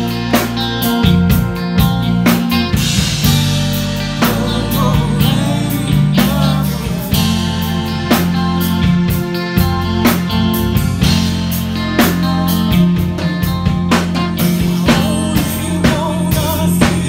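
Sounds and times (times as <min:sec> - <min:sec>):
bass guitar: 0:00.0 - 0:17.0
drum kit: 0:00.0 - 0:17.0
electric guitar: 0:00.0 - 0:17.0
person singing: 0:04.0 - 0:08.8, 0:14.2 - 0:17.0.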